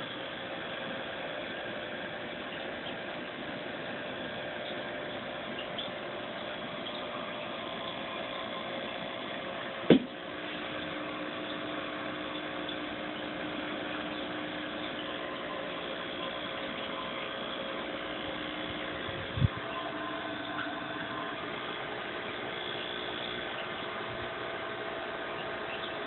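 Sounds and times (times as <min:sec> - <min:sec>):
steady mechanical hum: 0:00.0 - 0:26.0
loud knock: 0:09.9 - 0:10.1.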